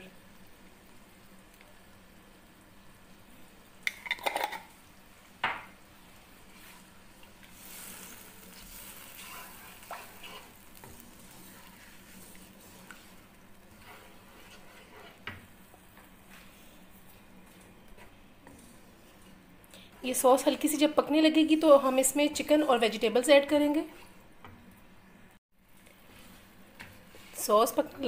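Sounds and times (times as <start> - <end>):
wooden spatula scraping a wok: 6.1 - 24.2, 25.8 - 28.0.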